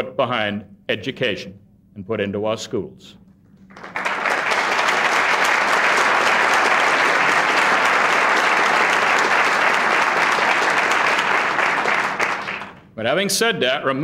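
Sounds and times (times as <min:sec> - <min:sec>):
audience applauding: 0:03.7 - 0:12.8.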